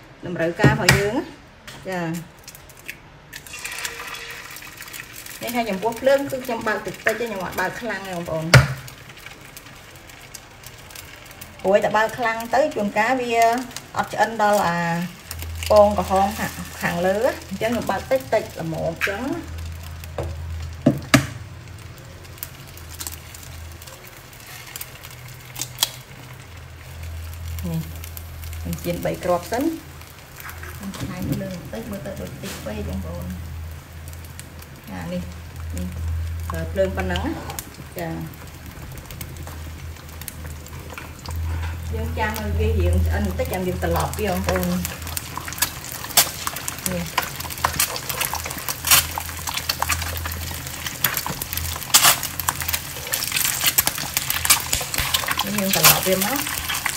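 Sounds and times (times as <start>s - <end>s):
eggs frying in a pan: 0.0s - 56.9s
low hum: 26.6s - 45.9s.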